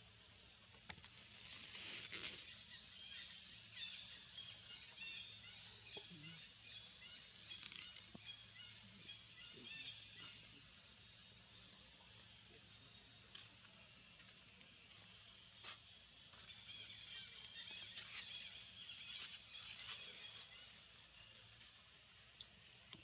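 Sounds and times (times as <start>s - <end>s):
steady high hiss: 0.0s - 5.9s.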